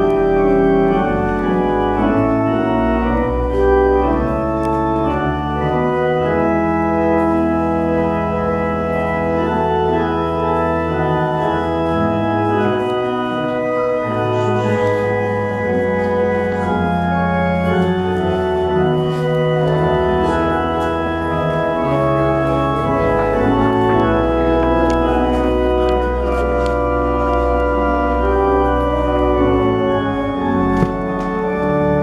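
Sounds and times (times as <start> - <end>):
organ playing sustained chords: 0.0 - 32.0
faint shuffling clicks: 14.4 - 29.3.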